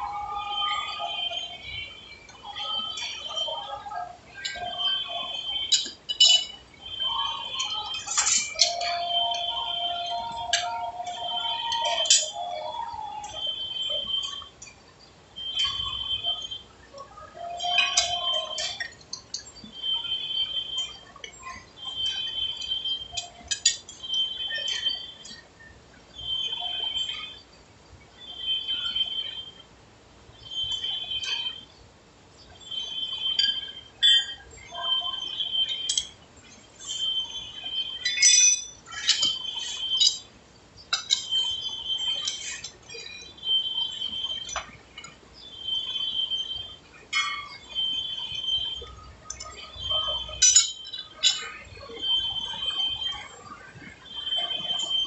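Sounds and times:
metal chips clinking: 5.7 - 6.6, 38.0 - 40.3, 50.4 - 51.4
lathe metallic ringing squeal: 36.6 - 40.3, 45.4 - 53.4.

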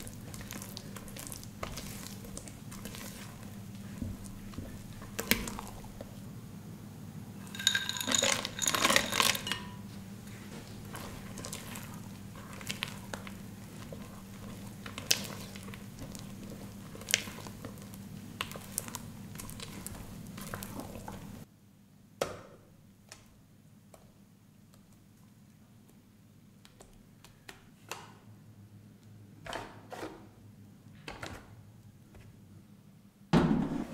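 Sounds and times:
spatula folding batter: 0.0 - 6.2, 8.6 - 21.5.

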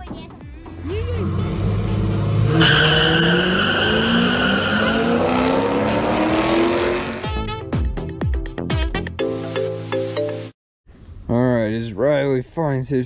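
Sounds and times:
car engines revving hard: 0.8 - 7.3
music with a beat: 7.2 - 10.5.

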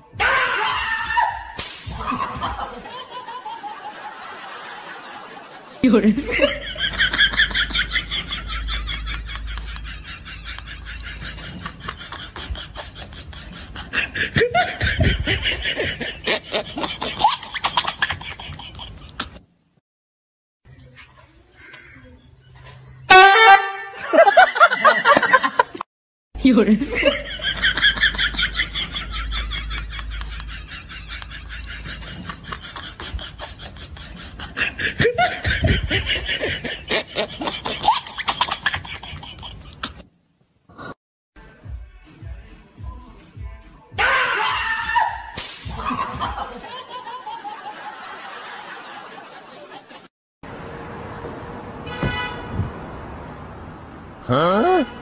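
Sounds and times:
people laughing hard: 1.9 - 19.4, 24.0 - 25.8, 26.8 - 40.0, 44.3 - 50.1.

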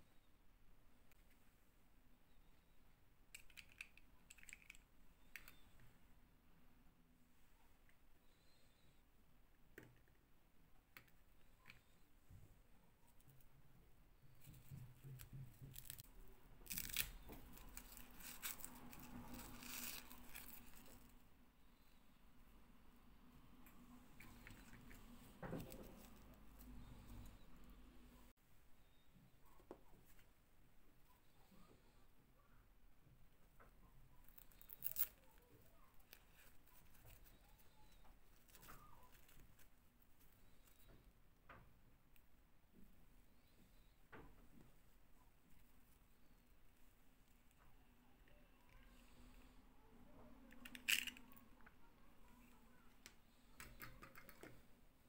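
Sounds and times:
small plastic clicks: 3.3 - 5.8, 50.5 - 51.8, 53.0 - 54.6
doll being handled rustling: 14.2 - 21.3, 23.7 - 27.6, 34.2 - 41.1, 50.5 - 53.0.

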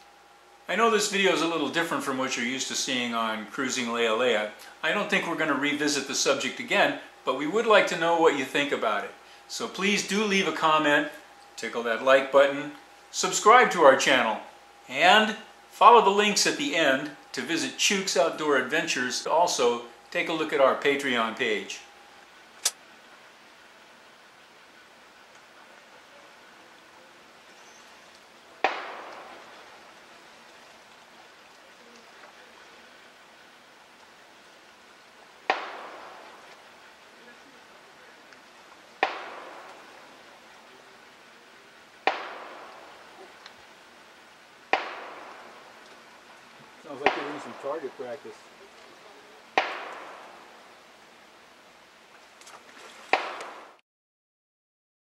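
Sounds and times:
faint outdoor hiss: 0.0 - 53.8
gunshot echoing: 28.6 - 29.6, 35.5 - 36.4, 39.0 - 39.8, 42.0 - 42.9, 44.8 - 45.6, 47.0 - 47.8, 49.6 - 50.4.

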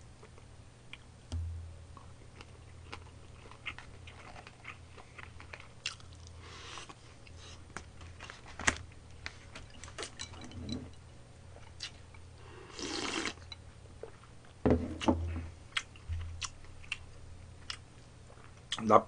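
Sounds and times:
chewing and mouth sounds: 2.0 - 8.4, 11.6 - 12.2, 15.7 - 18.9
slurp of liquid: 12.7 - 13.4.

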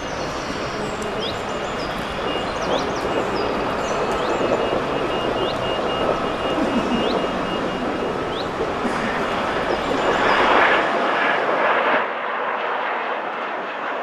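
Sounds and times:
bird chirps: 0.0 - 10.8
rushing outdoor noise: 0.0 - 14.0
faint high beep: 2.2 - 8.2.

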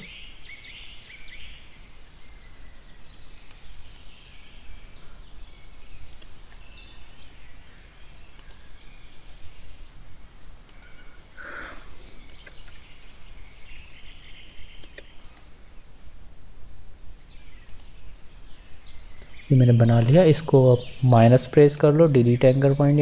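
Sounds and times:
low background hum and hiss: 0.0 - 23.0
faint clicks: 3.4 - 4.1, 8.3 - 8.6, 10.6 - 11.2, 12.2 - 12.8, 14.8 - 15.5, 17.6 - 18.0.

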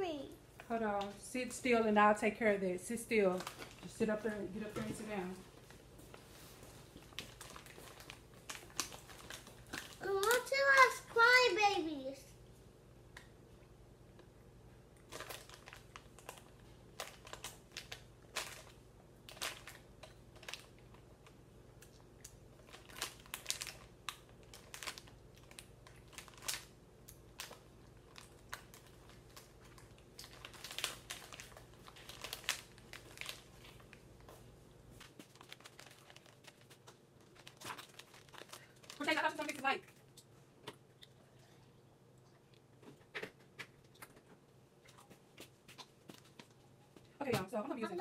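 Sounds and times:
low steady hum: 0.0 - 48.0
crinkling and rustling: 3.1 - 11.5, 15.0 - 41.6, 42.2 - 48.0.

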